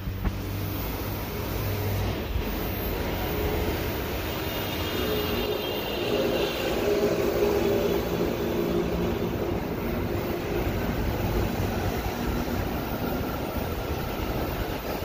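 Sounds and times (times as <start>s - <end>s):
metro train rumble with motor hum: 0.0s - 15.0s
approaching train high tone: 2.4s - 15.0s.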